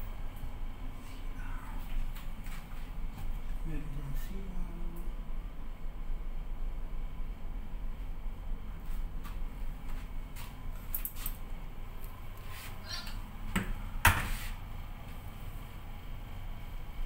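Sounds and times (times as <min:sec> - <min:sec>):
low hum of ship: 0:00.0 - 0:12.4.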